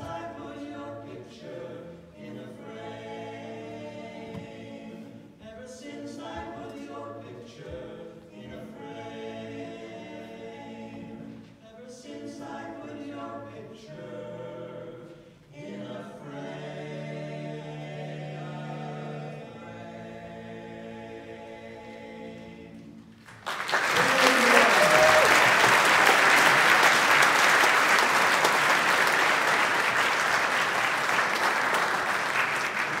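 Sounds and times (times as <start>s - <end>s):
a cappella quartet holding a chord: 0.0s - 23.2s
audience applause: 23.2s - 33.0s.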